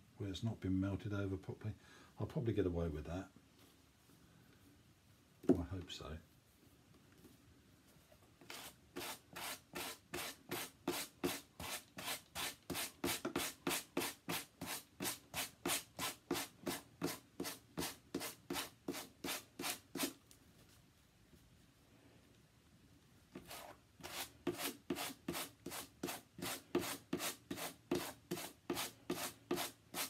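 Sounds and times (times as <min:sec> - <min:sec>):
brush scratching through fibres: 0:06.2 - 0:21.0, 0:23.3 - 0:30.0.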